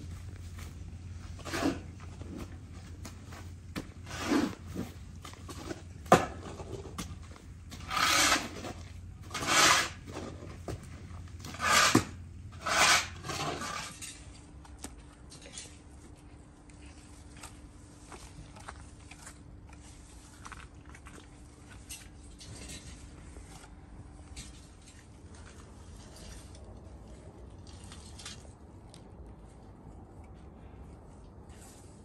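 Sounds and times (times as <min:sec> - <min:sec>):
scraping and rubbing: 0:00.0 - 0:14.3
faint steady hum: 0:00.0 - 0:32.0.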